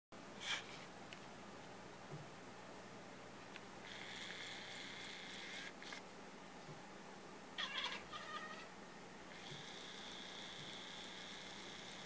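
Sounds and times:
cat chirping: 7.6s - 8.7s.

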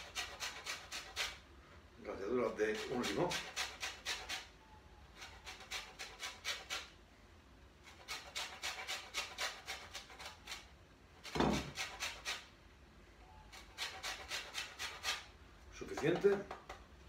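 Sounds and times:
lemon rasping on a grater: 0.0s - 1.4s, 2.4s - 4.5s, 5.1s - 7.0s, 7.8s - 12.5s, 13.5s - 16.5s.

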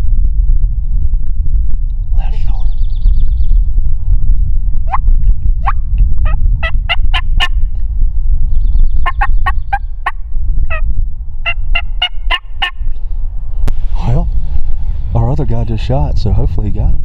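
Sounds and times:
steady low rumble: 0.0s - 17.0s
turkey yelping: 5.6s - 7.6s, 9.0s - 10.8s, 11.4s - 12.8s.

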